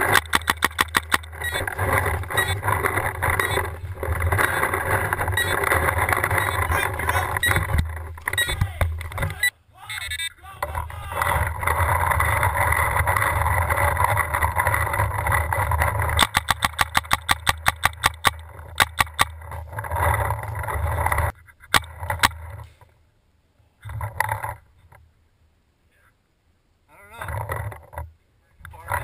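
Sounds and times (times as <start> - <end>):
paintball marker firing: 0.0 - 3.4, 16.2 - 19.3.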